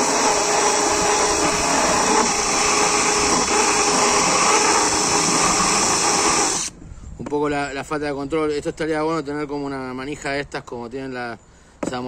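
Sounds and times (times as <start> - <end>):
drill bit chattering: 0.0 - 6.7
drill grinding into plywood: 0.0 - 6.7.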